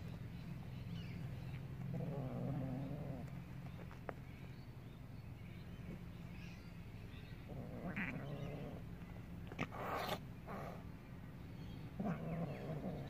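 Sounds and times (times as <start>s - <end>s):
cat hissing: 7.5s - 8.8s, 9.5s - 10.9s
cat yowling: 7.8s - 8.8s.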